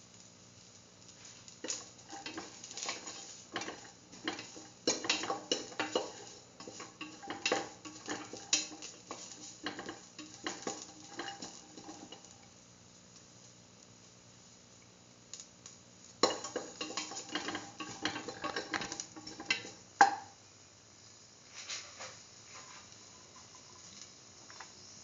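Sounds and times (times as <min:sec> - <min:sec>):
light sizzle: 0:00.0 - 0:25.0
spoon scraping a steel pan: 0:01.6 - 0:12.2, 0:16.2 - 0:19.8.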